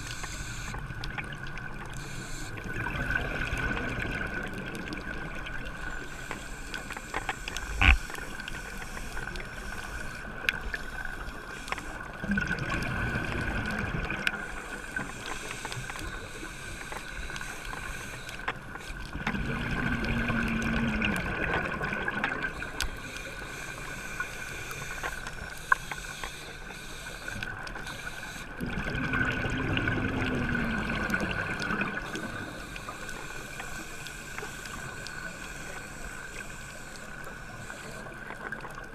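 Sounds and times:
rumbling exhaled bubbles: 0:12.2 - 0:14.4, 0:19.2 - 0:22.6, 0:28.6 - 0:32.4
diver breathing through regulator: 0:22.5 - 0:28.6.

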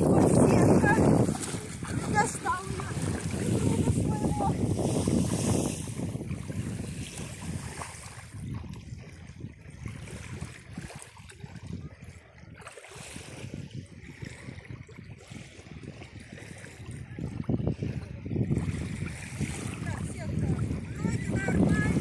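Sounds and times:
sea water sloshing: 0:00.0 - 0:22.0
wind buffeting microphone: 0:00.0 - 0:22.0.

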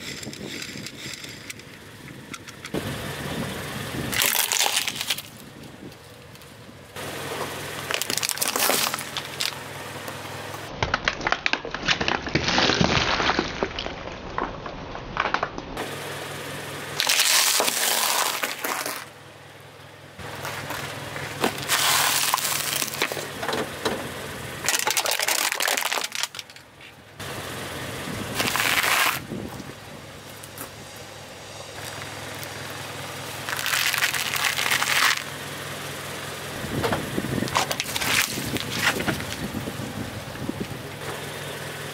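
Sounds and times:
low engine hum: 0:00.0 - 0:10.9, 0:15.7 - 0:41.9
tyre crushing objects: 0:07.8 - 0:09.6, 0:17.0 - 0:19.1, 0:20.3 - 0:23.4, 0:24.6 - 0:26.6, 0:28.3 - 0:29.6, 0:33.4 - 0:35.3, 0:36.8 - 0:39.6.

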